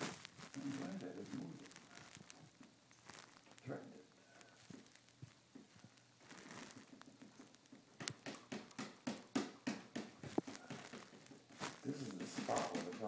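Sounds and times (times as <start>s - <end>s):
taps and clicks on printer: 12.2s - 13.0s.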